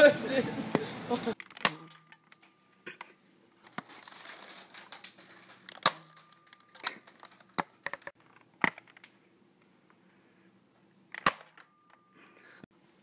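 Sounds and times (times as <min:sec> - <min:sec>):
rustling: 0:03.6 - 0:09.2.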